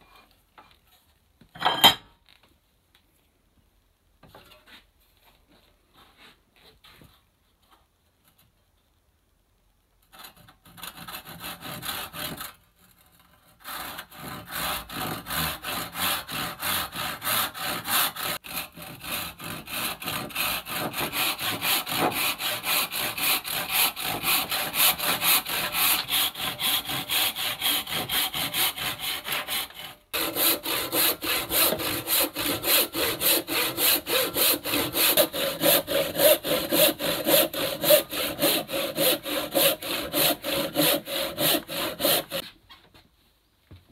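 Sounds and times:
handsaw cutting wood: 10.7 - 12.6, 13.6 - 42.4.

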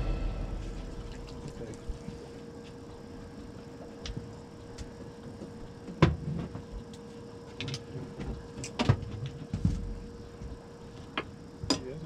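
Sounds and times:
faint steady hum: 0.0 - 7.5.

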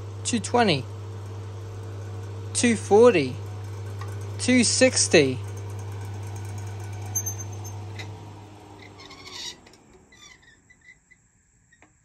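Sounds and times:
fan motor hum winding down: 0.0 - 10.8
faint high squeaks: 7.1 - 8.1, 8.8 - 11.9.

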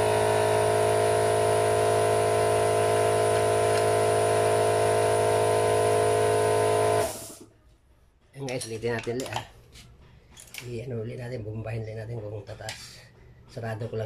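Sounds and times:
motor humming: 0.0 - 7.5.

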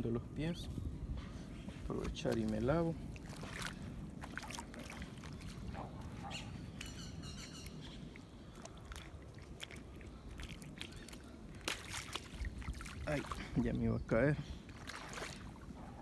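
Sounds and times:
footsteps on wet mud: 1.6 - 13.7
bird chirping: 5.3 - 8.6.

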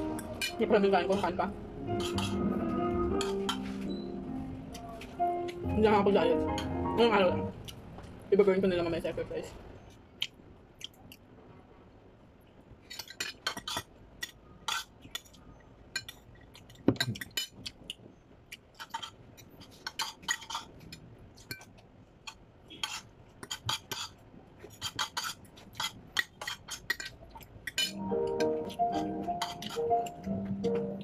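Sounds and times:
cutlery clinking on a plate: 1.9 - 2.4, 3.2 - 3.9, 18.8 - 21.7, 22.8 - 28.5, 29.3 - 30.8.

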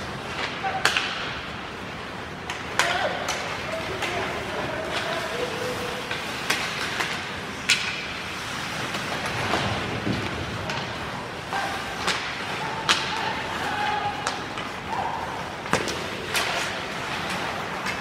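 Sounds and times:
hockey stick and puck cracks: 0.0 - 1.6, 2.4 - 5.2, 6.0 - 15.0, 15.6 - 18.0
skates scraping on ice: 0.0 - 18.0
players shouting: 2.5 - 6.6, 11.4 - 18.0.

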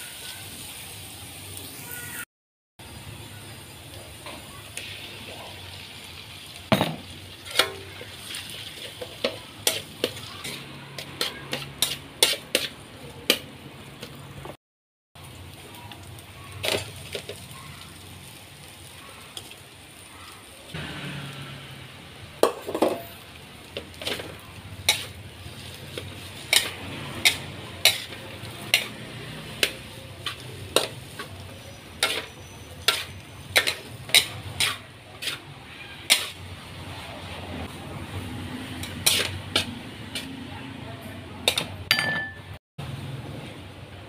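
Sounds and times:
faint sizzle: 0.0 - 14.4, 15.2 - 41.6
spatula scraping a wok: 7.3 - 14.2, 22.5 - 41.8.

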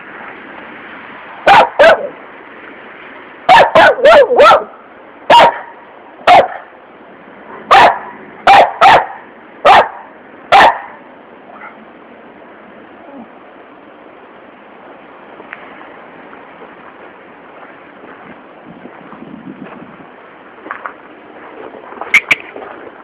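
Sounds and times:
dog barking: 1.4 - 2.2, 3.5 - 5.7, 6.3 - 6.7, 7.7 - 11.8.

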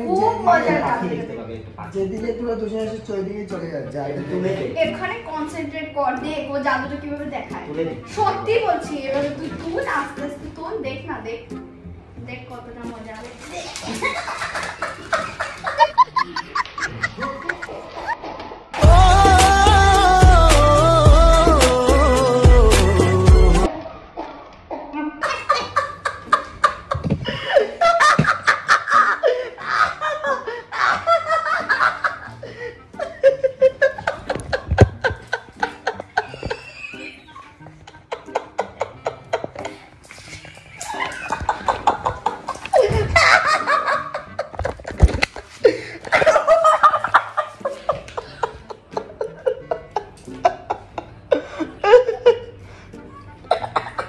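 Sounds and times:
people laughing: 13.4 - 18.2, 25.2 - 54.0.

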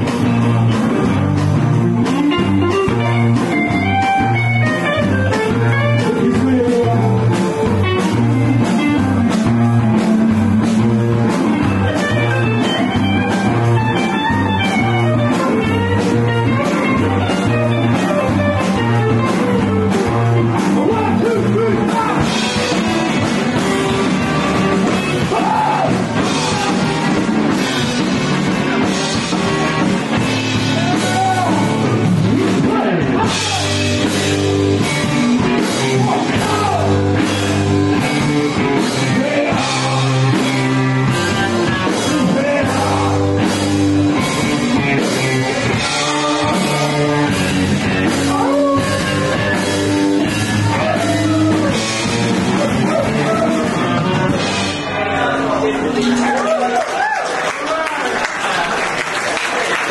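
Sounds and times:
heavy bass notes: 0.0 - 56.6
live rock band playing: 0.0 - 59.9
sung vocals: 38.8 - 41.0, 41.8 - 43.6, 45.5 - 49.5.

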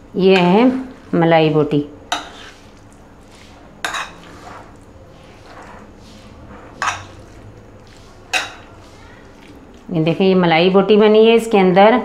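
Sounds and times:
metal spoon stirring in bowl: 0.2 - 10.3
spoon clinking against bowl: 3.8 - 4.3, 6.8 - 7.2, 8.3 - 8.7.

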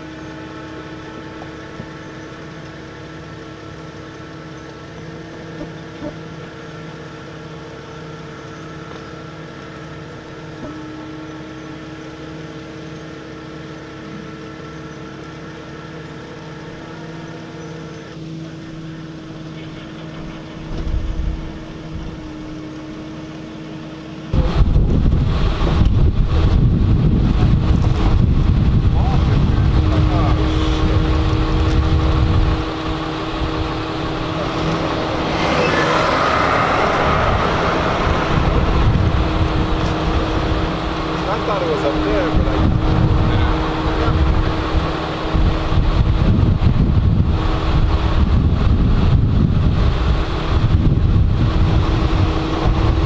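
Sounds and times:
vehicle engine running: 0.0 - 53.0
wind buffeting microphone: 24.3 - 53.0.

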